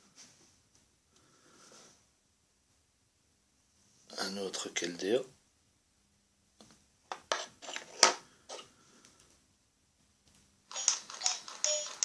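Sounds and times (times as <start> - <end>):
plastic figurines clicking on desk: 10.7 - 12.0.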